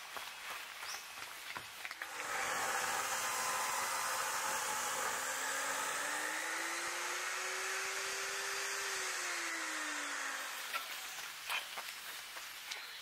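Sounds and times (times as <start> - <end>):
rushing blower-like noise: 2.0 - 11.2
faint rising hum: 2.0 - 11.5.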